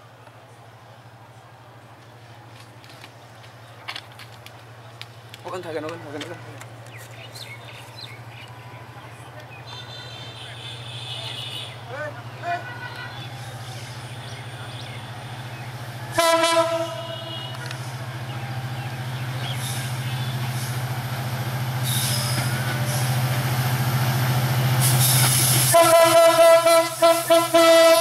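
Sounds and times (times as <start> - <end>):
locomotive engine drone: 0.0 - 28.0
locomotive horn blasts: 9.6 - 13.4, 16.1 - 18.0, 25.6 - 28.0.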